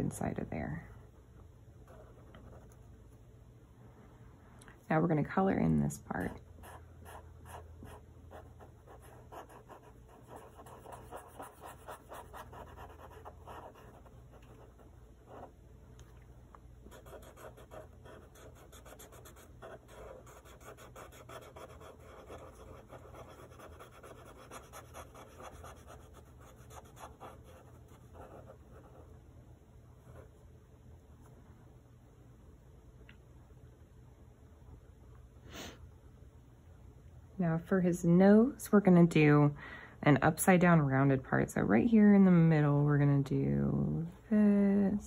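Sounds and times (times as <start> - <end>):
marker scratching on paper: 6.6 - 14.7, 16.9 - 29.0.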